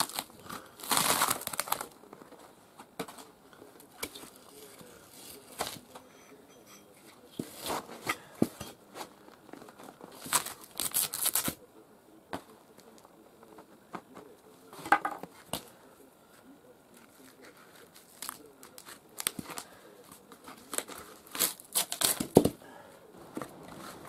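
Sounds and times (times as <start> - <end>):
bark tearing: 0.0 - 2.0, 10.2 - 11.6, 20.5 - 22.5.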